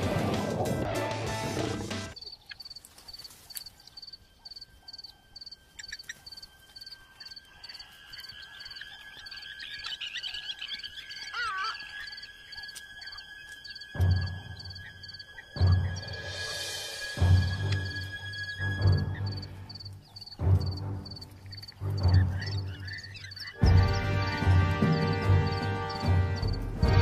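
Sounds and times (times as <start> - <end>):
insect or frog chirping: 2.2 - 16.6, 17.8 - 26.6
warbling bird call: 4.0 - 20.4.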